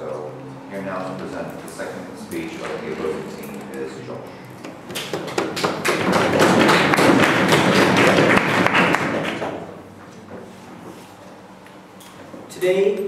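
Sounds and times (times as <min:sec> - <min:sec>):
audience applause: 0:04.9 - 0:09.6.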